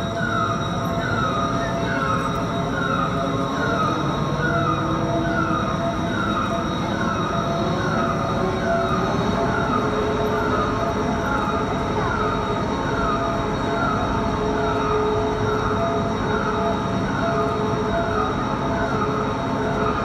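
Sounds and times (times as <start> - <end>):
crane motor hum: 0.0 - 20.0.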